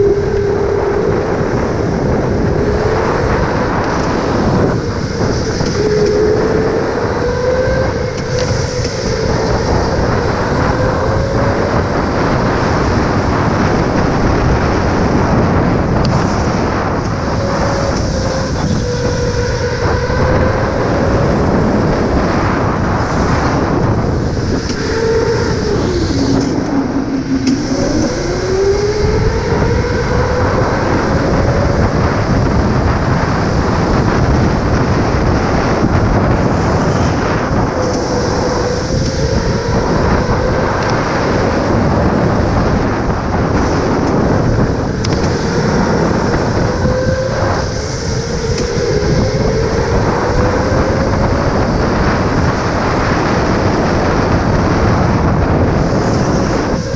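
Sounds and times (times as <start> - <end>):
electric go-kart motor whine: 0.0 - 56.9.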